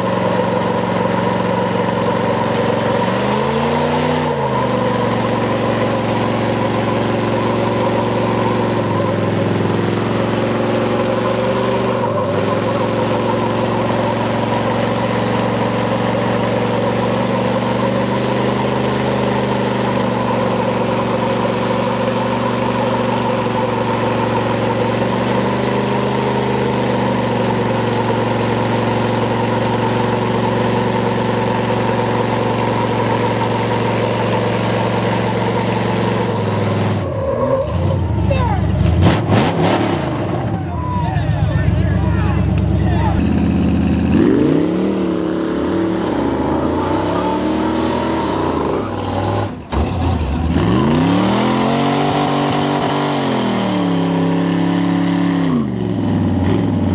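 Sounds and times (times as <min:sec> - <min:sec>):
truck engine running hard: 0:00.0 - 0:56.9.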